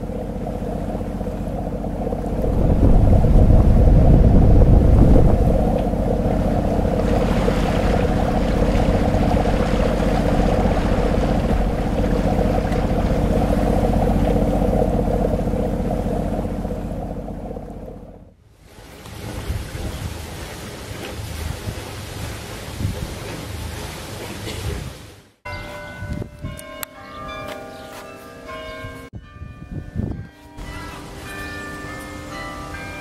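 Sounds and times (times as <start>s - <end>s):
wind buffeting microphone: 0.0s - 18.2s, 21.2s - 23.3s, 25.8s - 26.8s, 28.8s - 30.8s
boat engine running: 0.0s - 18.4s
hiss of wind and water: 0.0s - 25.4s.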